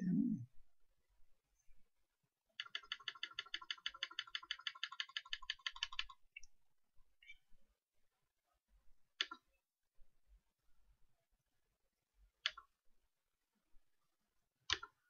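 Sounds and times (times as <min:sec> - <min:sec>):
computer mouse clicks: 0:02.6 - 0:06.5, 0:09.2 - 0:09.5, 0:12.4 - 0:12.7, 0:14.7 - 0:15.0.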